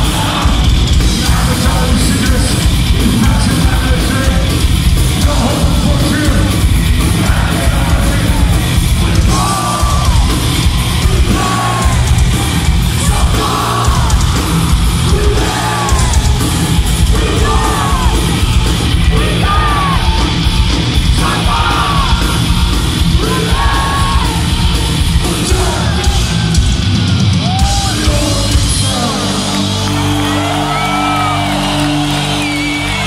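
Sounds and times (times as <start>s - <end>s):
fast drumming: 0.0s - 30.2s
heavy metal band playing: 0.0s - 33.0s
voices yelling: 15.1s - 20.5s.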